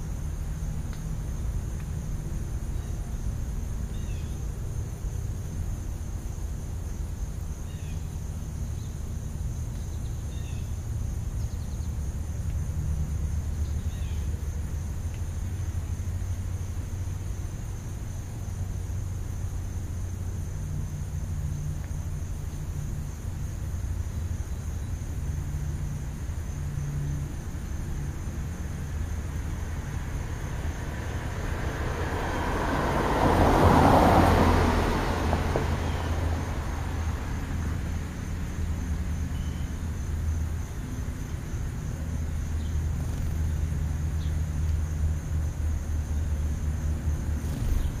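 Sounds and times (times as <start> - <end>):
car passing: 10.3 - 48.0.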